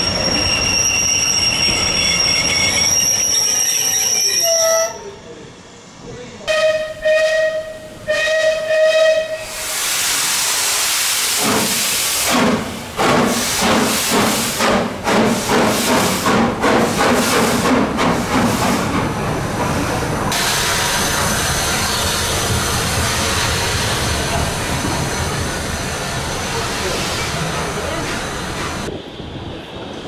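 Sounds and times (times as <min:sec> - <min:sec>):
steam locomotive whistle: 0:02.4 - 0:05.0, 0:06.5 - 0:09.7
steam hissing: 0:09.4 - 0:19.0, 0:20.3 - 0:28.8.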